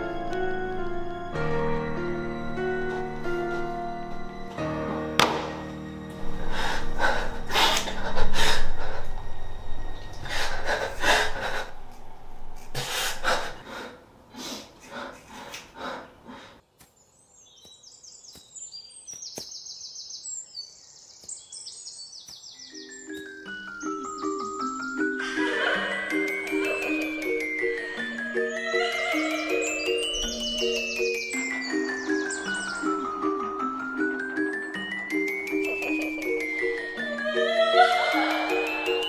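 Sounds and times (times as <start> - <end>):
heavy gasping breathing: 6.3 - 9.2, 12.7 - 16.6
faint high bird chirps: 16.8 - 24.4, 29.2 - 33.4.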